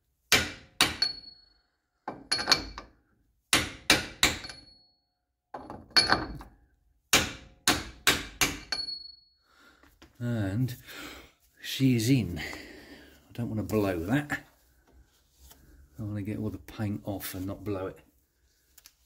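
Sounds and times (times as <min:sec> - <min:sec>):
hammer striking metal socket: 0:00.4 - 0:01.4, 0:02.1 - 0:02.9, 0:03.6 - 0:04.8, 0:07.2 - 0:09.1
metallic ring: 0:01.0 - 0:01.7, 0:04.4 - 0:05.0, 0:08.7 - 0:09.4.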